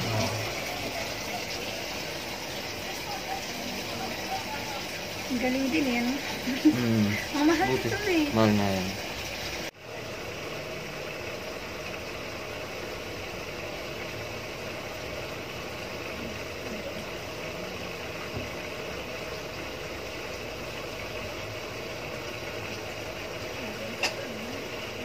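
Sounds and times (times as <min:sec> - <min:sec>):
water pouring into tub: 0:00.0 - 0:09.7
washing machine running: 0:00.0 - 0:25.0.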